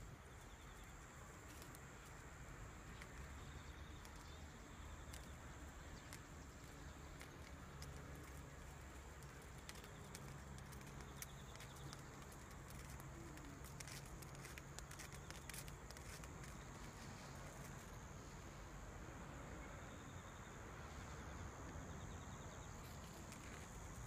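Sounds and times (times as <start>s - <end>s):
high insect trill: 0.0s - 24.0s
light clicks and ticks: 0.4s - 18.1s.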